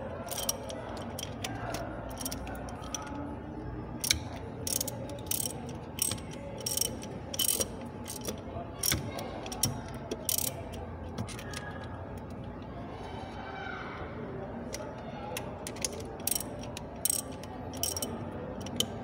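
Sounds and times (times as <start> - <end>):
ratchet wrench clicking: 0.3 - 3.2, 4.0 - 11.8, 14.7 - 19.0.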